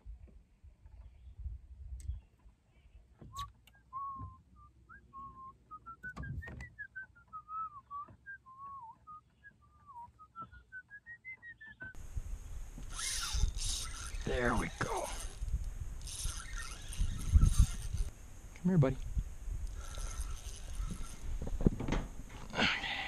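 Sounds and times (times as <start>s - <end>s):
person whistling a tune: 3.4s - 11.8s.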